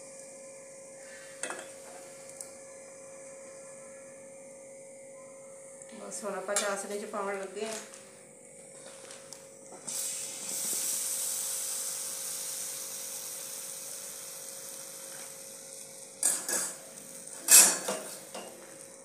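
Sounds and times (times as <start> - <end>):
sizzling in sugar syrup: 9.7 - 19.0
metal utensils clanking: 17.4 - 18.5.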